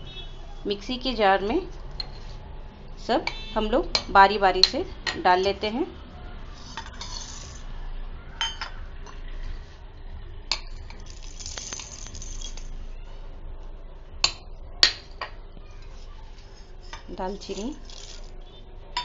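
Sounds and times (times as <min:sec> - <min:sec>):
spices rattling in steel jar: 0:06.6 - 0:07.6, 0:10.5 - 0:12.8, 0:16.6 - 0:18.4.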